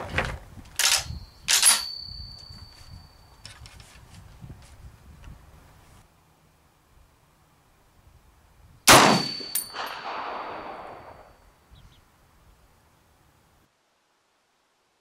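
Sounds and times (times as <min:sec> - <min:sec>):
metallic clinks: 0:00.8 - 0:03.6, 0:09.1 - 0:10.2
high ring: 0:01.1 - 0:03.5, 0:09.1 - 0:10.1, 0:10.8 - 0:11.6
rifle shot echoing: 0:08.9 - 0:11.3.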